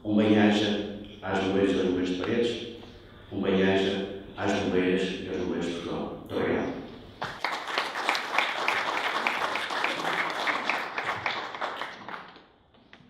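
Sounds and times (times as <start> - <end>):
small audience applauding: 7.2 - 12.6.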